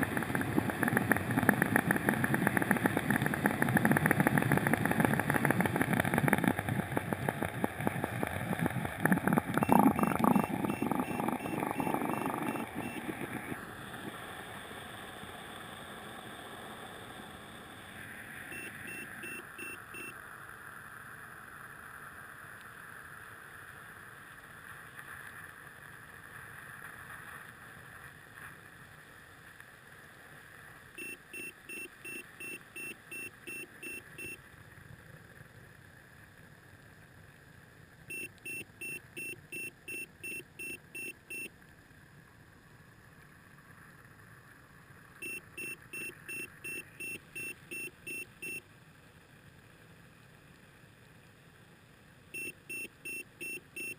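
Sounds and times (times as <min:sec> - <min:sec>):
water churning underwater: 0:00.0 - 0:18.6
low steady hiss: 0:00.0 - 0:53.9
quick electronic beeps: 0:09.6 - 0:13.6, 0:31.0 - 0:34.4, 0:45.2 - 0:48.6, 0:52.4 - 0:53.9.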